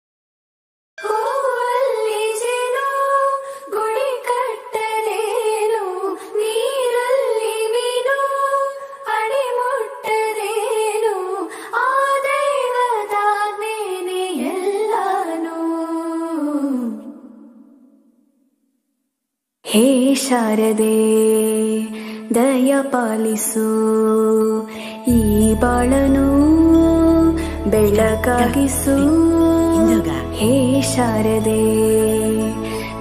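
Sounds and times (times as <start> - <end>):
devotional melody: 24.0 - 33.0.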